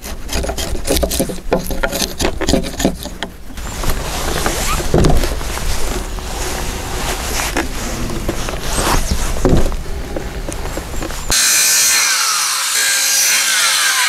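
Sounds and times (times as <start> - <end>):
chisel clicking on wood: 0.0 - 3.4.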